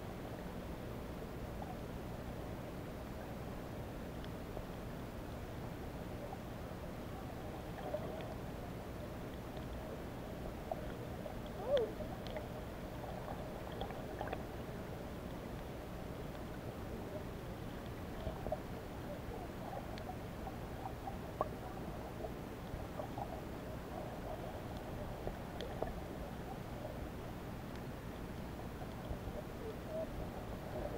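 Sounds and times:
faint underwater clicks: 4.1 - 5.5, 7.6 - 30.9
low underwater rumble: 4.5 - 30.9.

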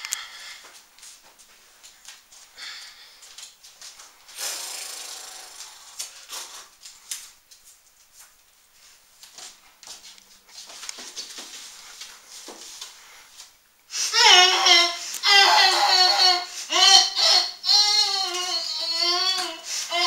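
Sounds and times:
people moving on wooden floor: 6.8 - 13.6.

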